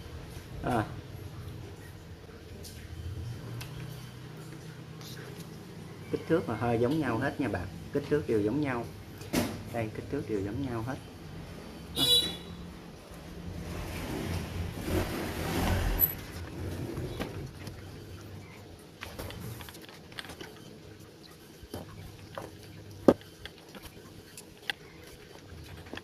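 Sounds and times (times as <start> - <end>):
hands rustling parts: 18.9 - 26.0.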